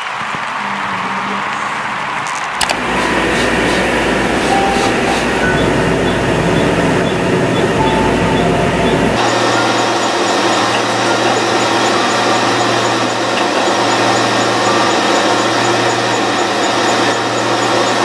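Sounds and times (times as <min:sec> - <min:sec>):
short beeps: 0:04.5 - 0:13.2.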